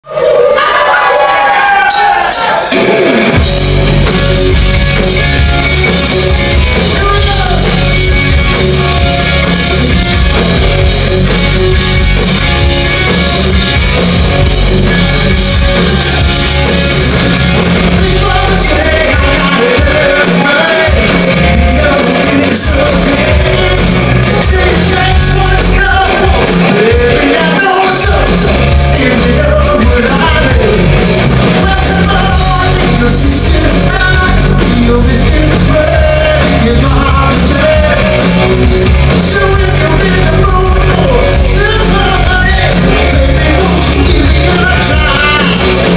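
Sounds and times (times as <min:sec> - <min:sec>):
hard rock band playing: 0:00.1 - 0:45.9
lead singer singing: 0:06.6 - 0:08.0, 0:14.0 - 0:45.9.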